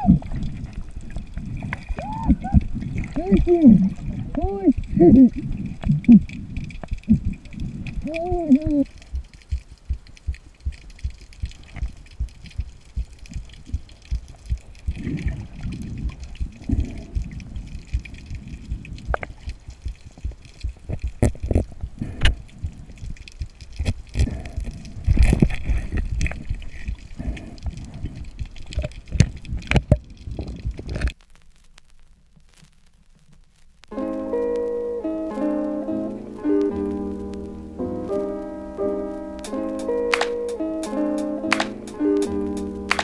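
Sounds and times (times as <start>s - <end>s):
muffled underwater water noise: 0.0s - 43.0s
sharp clicks and knocks: 39.5s - 43.0s.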